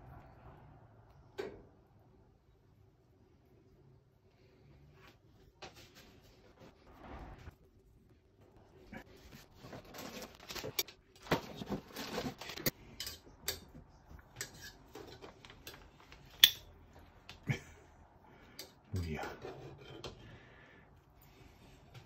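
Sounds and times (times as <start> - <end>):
tongs clicking against metal pot: 13.0 - 13.8.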